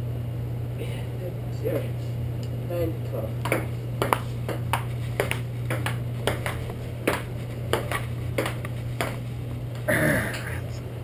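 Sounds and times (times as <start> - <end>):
table tennis ball clicking: 3.4 - 9.2.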